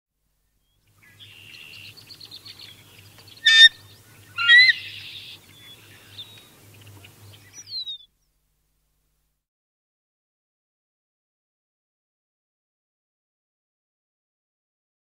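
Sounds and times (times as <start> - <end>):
distant birds chirping: 0.6 - 8.4
geese honking: 3.4 - 5.4.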